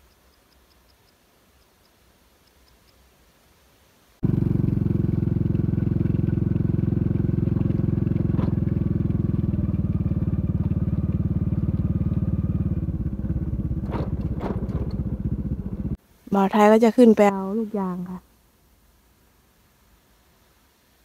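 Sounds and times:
motorcycle engine running: 4.2s - 16.0s.

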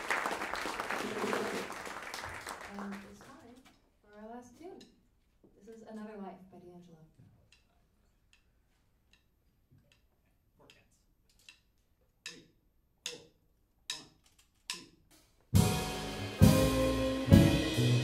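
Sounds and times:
jazz band playing: 15.5s - 18.0s.

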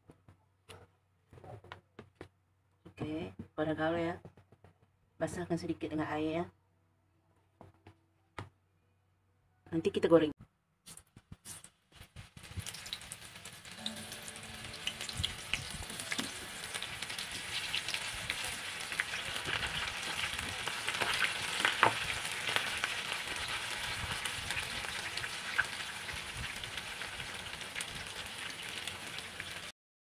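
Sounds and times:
battered slices sizzling in oil: 11.5s - 29.7s.

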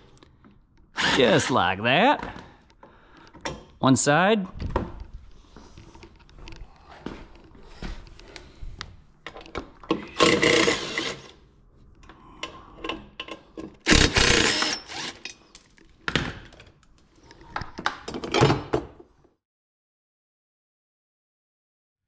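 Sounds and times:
cordless drill running: 10.1s - 11.3s, 13.9s - 15.2s.

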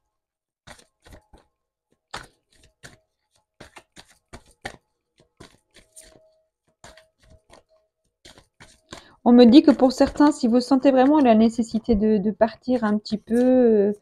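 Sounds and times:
cards being shuffled: 0.6s - 11.9s, 12.6s - 14.0s.

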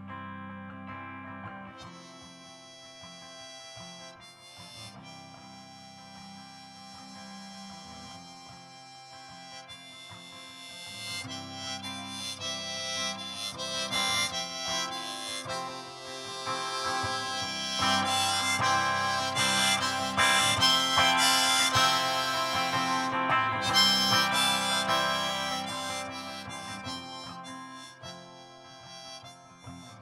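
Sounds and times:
strummed electric guitar: 0.0s - 30.0s
harmonica lead: 1.3s - 30.0s.

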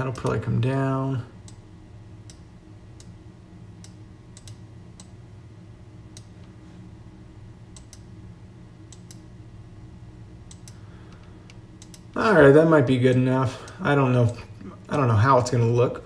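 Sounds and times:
faint low hum: 0.0s - 16.0s
computer mouse clicks: 3.8s - 5.2s, 7.7s - 8.1s, 10.5s - 12.1s.

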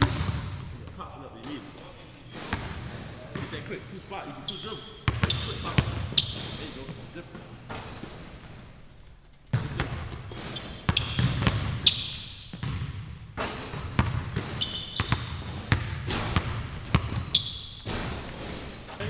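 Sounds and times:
basketball bouncing on wooden floor: 0.0s - 1.6s, 2.3s - 3.5s, 5.0s - 7.0s, 9.5s - 18.7s
sneaker squeaks: 0.0s - 19.0s.

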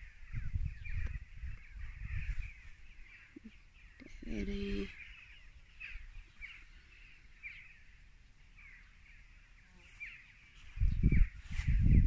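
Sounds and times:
low rumble on microphone: 0.0s - 3.6s, 10.6s - 12.0s
small bird chirping: 0.0s - 12.0s.

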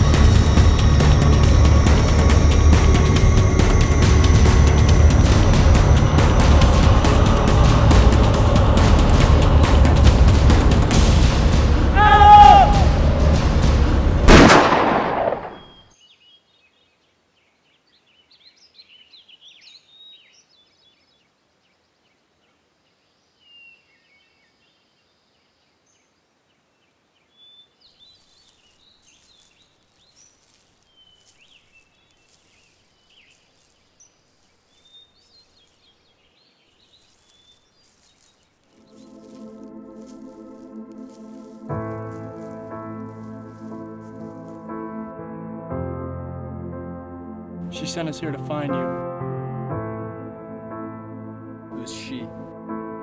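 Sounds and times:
music: 0.0s - 15.4s, 38.7s - 53.0s
pistol gunshot: 14.3s - 15.8s
birds chirping: 14.3s - 45.3s.

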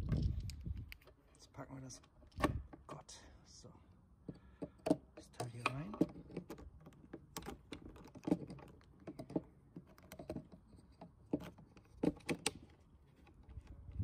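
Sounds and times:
plastic pump head clicks and knocks: 4.2s - 12.7s.

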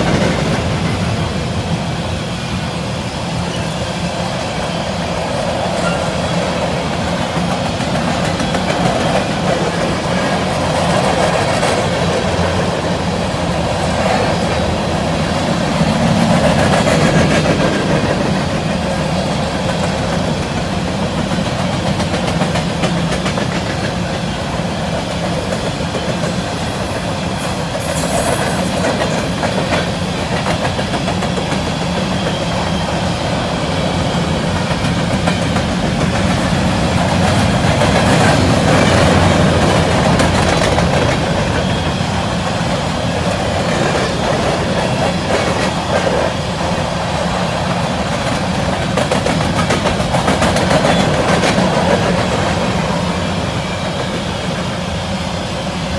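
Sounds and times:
train wheels rumbling on rail: 0.0s - 55.9s
high wheel squeal: 3.4s - 6.8s, 26.5s - 30.3s.

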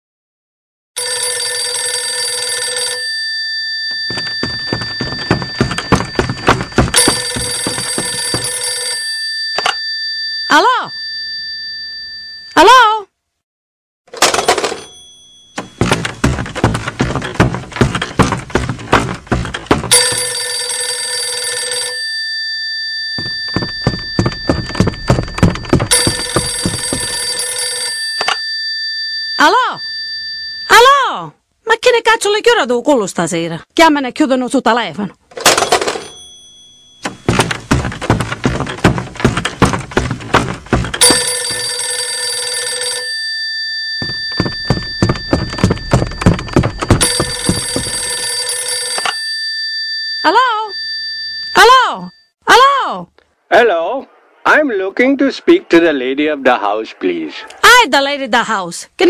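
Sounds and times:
telephone bell ringing: 1.0s - 12.7s, 14.2s - 16.0s, 19.9s - 30.8s, 35.5s - 37.8s, 41.0s - 52.4s
loud knocks and clatter: 4.1s - 8.7s, 15.6s - 20.4s, 23.2s - 27.5s, 37.0s - 41.7s, 44.0s - 48.3s.

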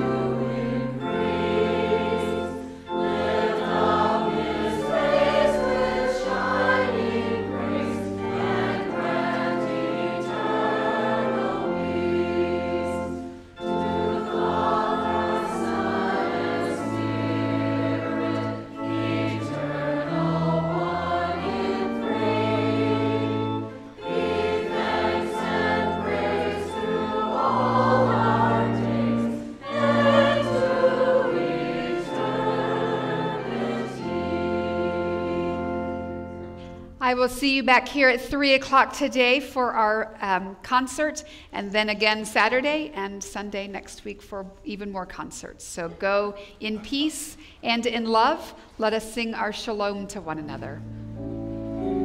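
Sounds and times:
church choir singing a hymn: 0.0s - 37.2s, 50.5s - 52.0s
instrumental accompaniment: 0.0s - 37.4s, 50.2s - 52.0s.

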